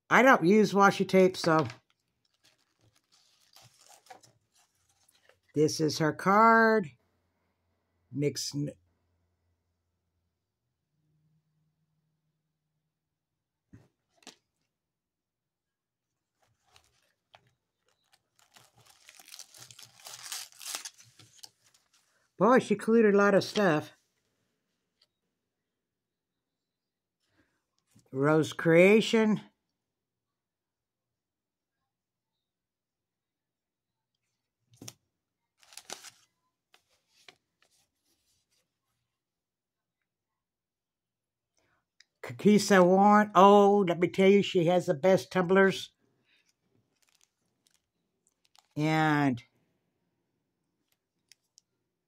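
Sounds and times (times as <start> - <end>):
plastic wrapping crinkling and tearing: 1.6 - 5.5, 16.4 - 22.1, 35.6 - 36.3, 46.4 - 48.8.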